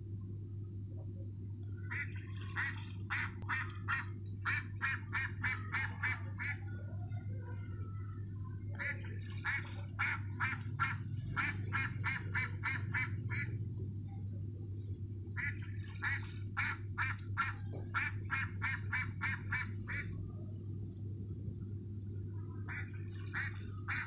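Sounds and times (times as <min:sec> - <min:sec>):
steady low hum: 0:00.0 - 0:24.0
electronic duck quacks: 0:01.8 - 0:06.7, 0:08.7 - 0:13.6, 0:15.4 - 0:20.2, 0:22.6 - 0:24.0.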